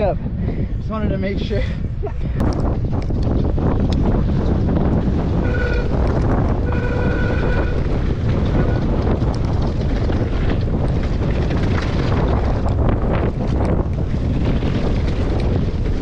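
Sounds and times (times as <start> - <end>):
bike tyres rumbling: 0.0 - 16.0
wind buffeting microphone: 0.0 - 16.0
bike frame and chain rattling: 2.4 - 16.0
high-pitched bike whine: 3.8 - 13.5.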